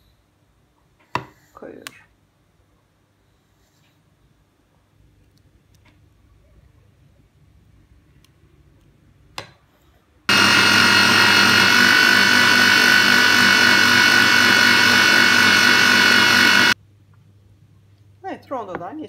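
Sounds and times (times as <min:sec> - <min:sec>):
food processor motor running: 0:10.3 - 0:16.8.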